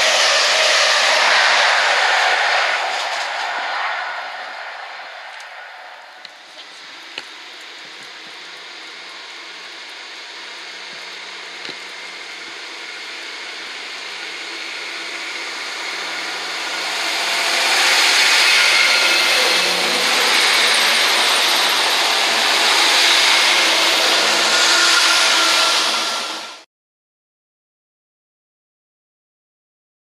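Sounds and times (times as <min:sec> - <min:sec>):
diesel train passing: 0:00.0 - 0:07.9, 0:12.2 - 0:26.6.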